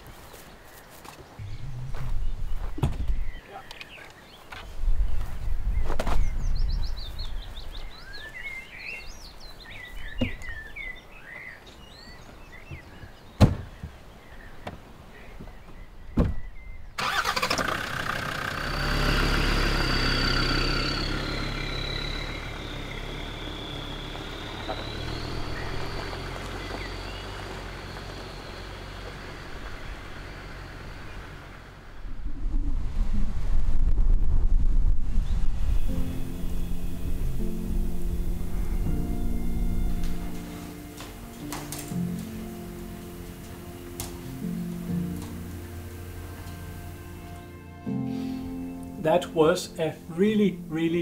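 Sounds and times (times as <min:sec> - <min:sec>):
birds calling: 0:00.0 - 0:32.1, 0:35.7 - 0:51.0
vehicle engine whining: 0:01.4 - 0:04.8, 0:16.6 - 0:32.6, 0:33.3 - 0:51.0.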